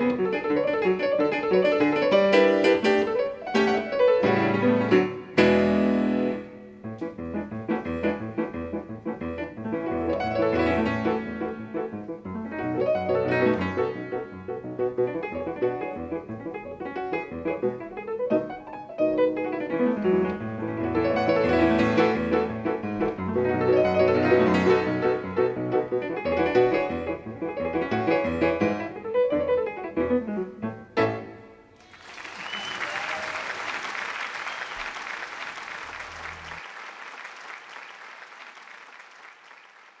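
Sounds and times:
fast grand piano playing: 0.0s - 31.8s, 35.0s - 36.7s
audience applause: 31.8s - 40.0s.

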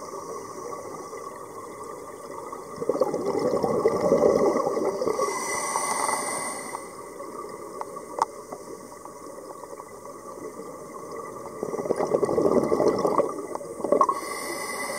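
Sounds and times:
underwater hiss: 0.0s - 1.6s, 3.8s - 7.7s, 12.4s - 14.9s
bubbles gurgling underwater: 1.4s - 5.2s, 9.7s - 14.2s.

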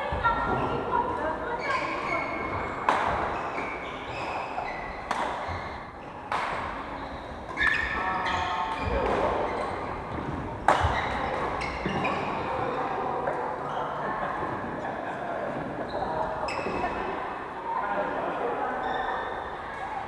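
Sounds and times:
shoes squeaking on wooden floor: 1.6s - 12.8s, 15.9s - 17.0s
racket smacking shuttlecock: 2.5s - 3.6s, 5.0s - 5.5s, 6.3s - 6.8s, 10.6s - 11.5s.

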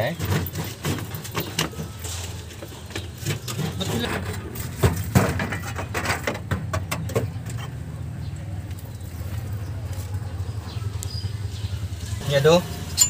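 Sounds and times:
radiator knocking and scraping metal: 0.0s - 8.1s.

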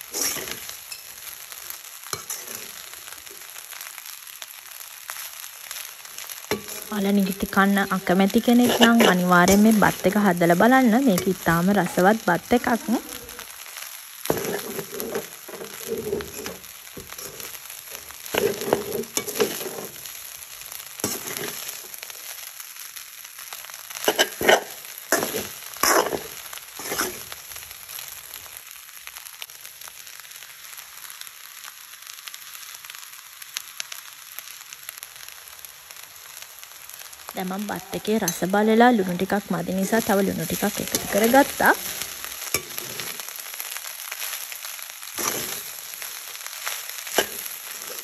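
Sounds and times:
metal spoon scraping a pan: 0.1s - 1.2s, 2.2s - 2.9s, 6.5s - 10.4s, 14.2s - 20.1s, 21.0s - 22.1s, 24.0s - 27.4s, 39.3s - 43.2s, 45.2s - 46.0s, 47.1s - 48.0s.

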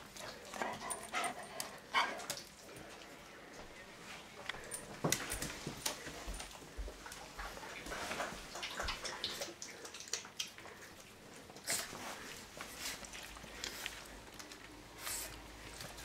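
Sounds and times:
dog lapping water: 7.2s - 14.3s.

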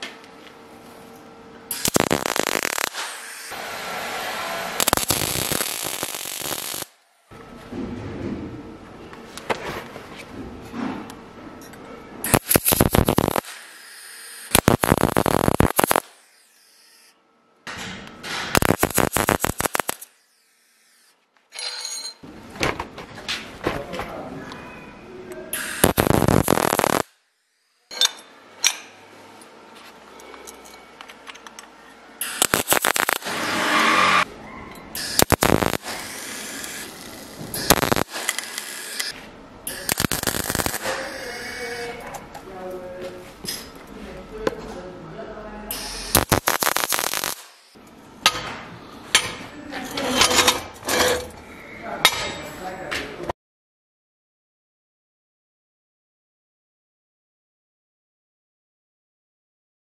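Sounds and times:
welder crackling and spattering: 1.7s - 3.8s, 4.7s - 7.0s, 12.3s - 17.0s, 18.3s - 21.2s, 25.6s - 27.2s, 32.2s - 34.3s, 35.0s - 41.7s, 45.8s - 47.8s.

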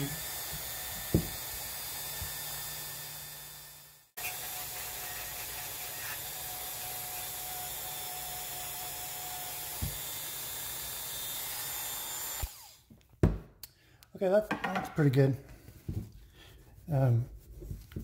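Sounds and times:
rotary tool polishing: 0.0s - 12.8s.

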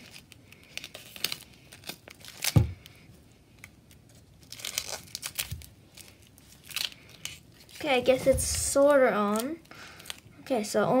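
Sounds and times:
duct tape crackling: 3.6s - 10.2s.

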